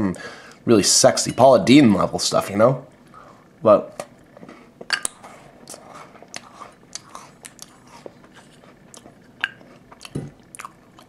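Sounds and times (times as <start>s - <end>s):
chewing crisp cookie crunches: 5.0s - 11.0s.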